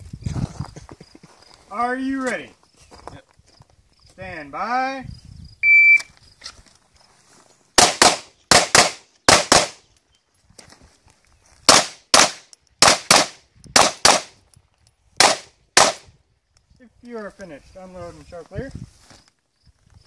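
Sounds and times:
pistol shots in rapid pairs: 0:07.8 - 0:09.8, 0:11.7 - 0:14.3, 0:15.2 - 0:16.0.

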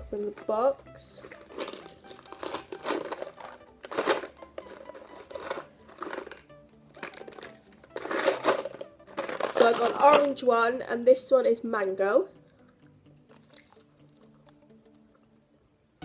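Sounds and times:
faint music: 0:00.0 - 0:16.0
cardboard box crinkling and tearing: 0:01.4 - 0:06.4, 0:07.0 - 0:10.0.

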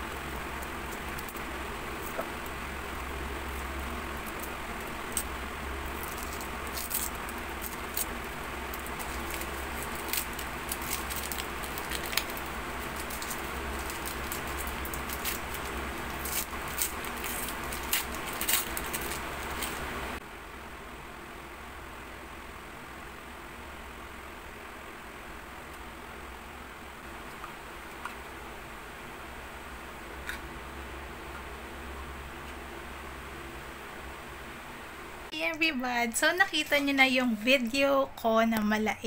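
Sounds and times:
steady background hiss: 0:00.0 - 0:39.0
paper wrapper crinkling: 0:05.9 - 0:20.0.

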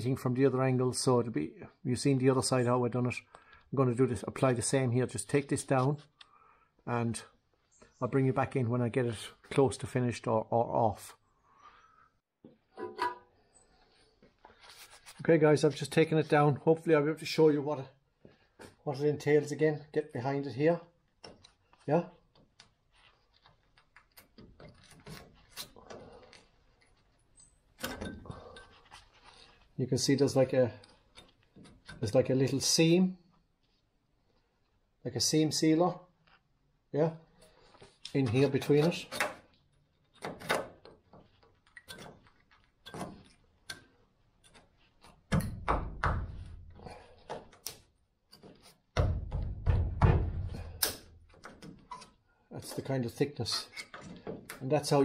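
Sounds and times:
heavy thumps: 0:48.9 - 0:50.8
chisel scraping steel: 0:51.7 - 0:54.3
chisel scraping metal: 0:53.4 - 0:54.2.

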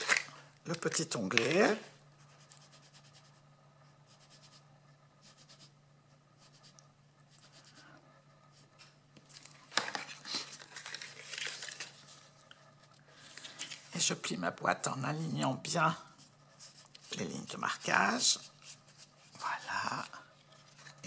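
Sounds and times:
cardstock rustling and crinkling: 0:00.0 - 0:01.8, 0:09.2 - 0:14.1.

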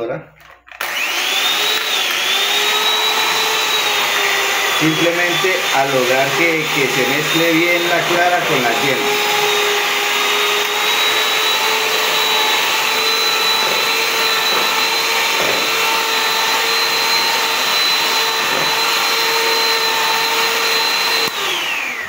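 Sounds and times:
hand mixer whining: 0:00.5 - 0:22.0
beaters whisking eggs in bowl: 0:10.5 - 0:21.4.

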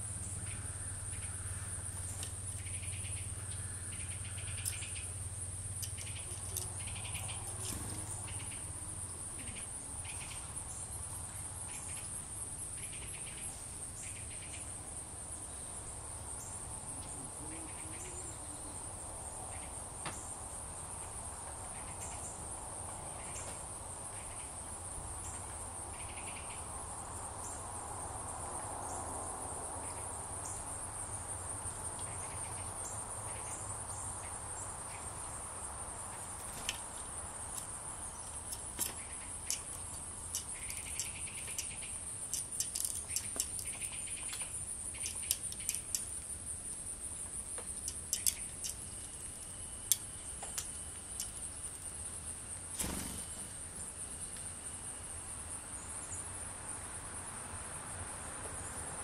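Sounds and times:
faint chirps: 0:00.0 - 0:24.6, 0:36.0 - 0:46.4, 0:47.2 - 0:55.0
insects trilling: 0:00.0 - 0:59.0
faint clicks: 0:38.3 - 0:46.1, 0:47.5 - 0:49.2.

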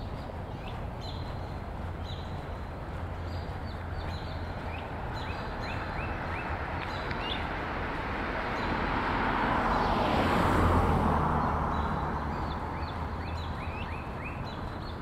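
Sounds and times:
steady low hum: 0:00.0 - 0:06.1
car passing: 0:00.0 - 0:15.0.

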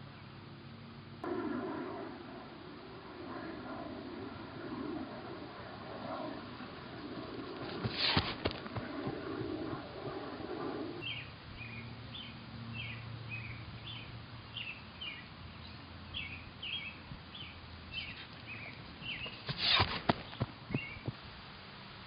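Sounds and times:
footfalls on grass: 0:07.6 - 0:08.8
songbird chirping: 0:11.0 - 0:19.5, 0:20.1 - 0:21.2.

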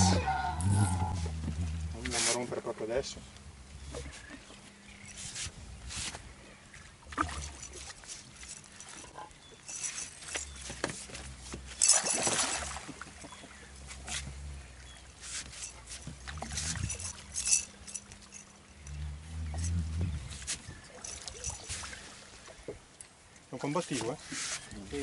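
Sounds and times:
water sloshing: 0:06.5 - 0:23.0
fish thrashing and splashing: 0:09.8 - 0:13.6.

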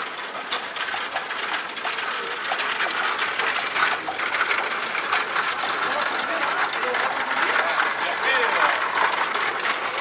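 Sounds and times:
wooden handcarts rattling on asphalt: 0:00.0 - 0:10.0.

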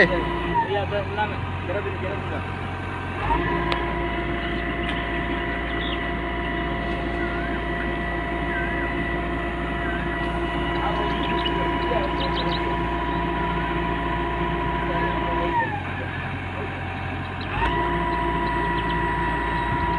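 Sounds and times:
excavator diesel engine running: 0:00.0 - 0:19.9
thin high whine: 0:03.3 - 0:16.7.

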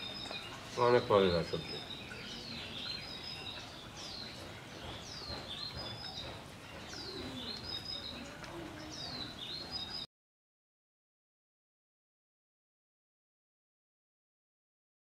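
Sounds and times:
songbird singing: 0:00.0 - 0:10.1.

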